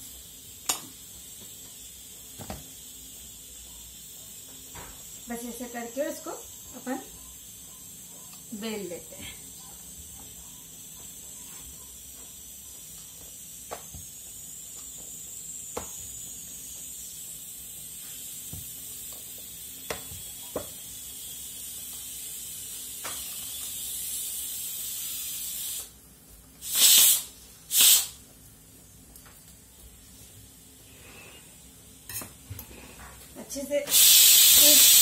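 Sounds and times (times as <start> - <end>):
pressure cooker hissing steam: 0.0 - 26.0, 26.6 - 28.2, 33.5 - 35.0
loud steam blasts: 26.6 - 28.2, 33.9 - 35.0.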